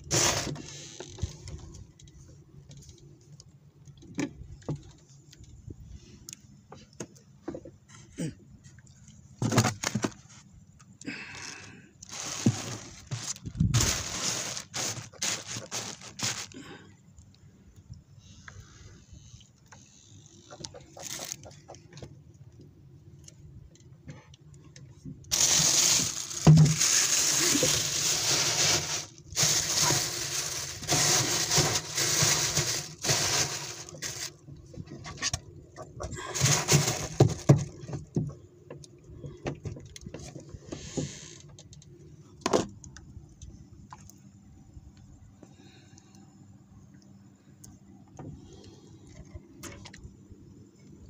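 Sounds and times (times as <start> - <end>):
plastic bag crinkling: 12.0 - 16.6, 25.3 - 34.4.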